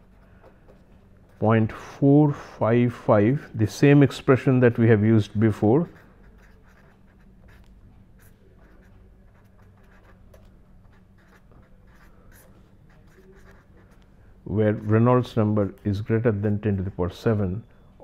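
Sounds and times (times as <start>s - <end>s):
pen scratching on paper: 5.7s - 14.0s.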